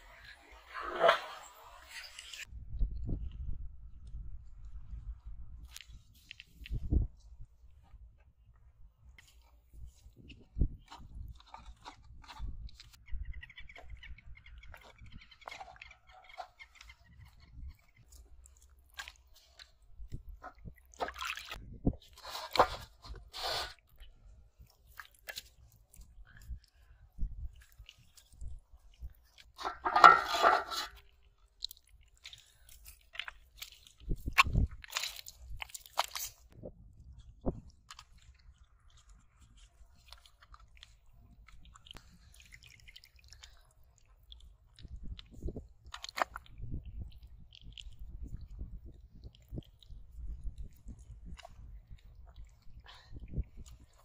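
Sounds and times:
fish traps scraping and knocking: 0.0 - 2.5, 20.4 - 23.9, 29.4 - 31.0
sticks squelching into wet mud: 14.7 - 36.6, 37.2 - 54.0.

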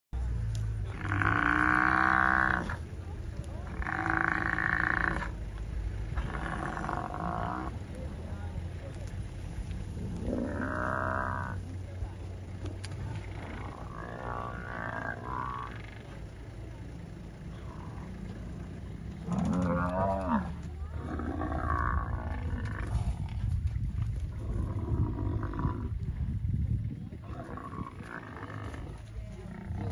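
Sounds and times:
lions growling: 0.8 - 2.9, 3.5 - 7.8, 9.9 - 11.7, 12.4 - 16.7, 17.5 - 23.4, 24.3 - 26.0, 27.2 - 29.9
buffalo bellowing distress calls: 0.9 - 2.9, 3.6 - 5.4, 6.1 - 7.8, 10.0 - 11.6, 13.4 - 16.2, 17.5 - 23.0.

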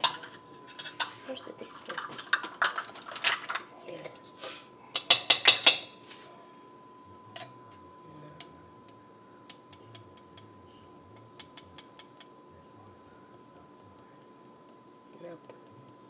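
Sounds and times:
metal spoon tapping mixing bowl: 5.0 - 5.9, 8.4 - 10.6, 11.2 - 12.3.

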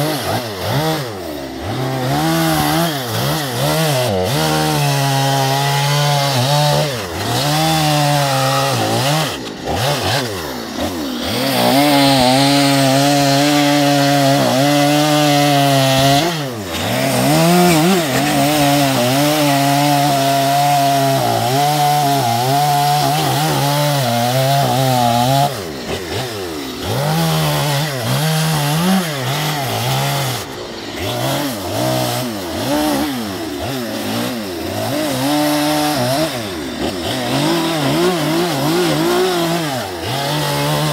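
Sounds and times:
chainsaw cutting log: 0.0 - 40.9.

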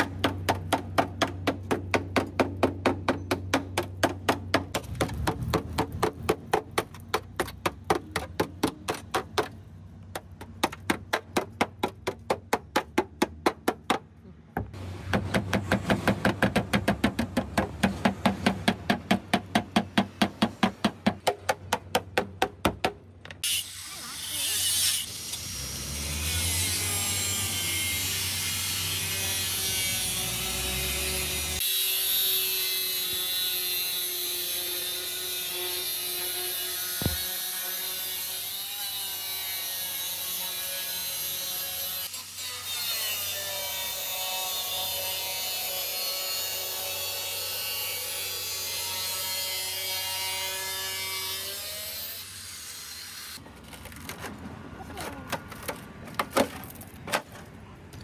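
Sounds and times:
angle grinder grinding rusted steel: 23.4 - 53.4.

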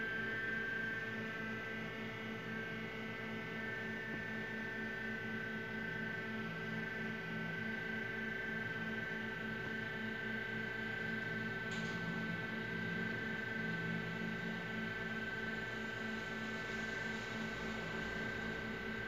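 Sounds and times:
steady pulsing hum: 12.2 - 19.0.

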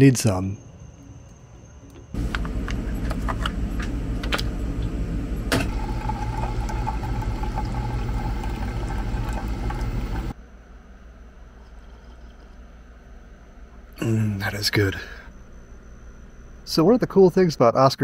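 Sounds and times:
coffee maker pump humming: 2.0 - 10.4, 11.4 - 13.1
coffee streaming into mug: 5.6 - 10.3.

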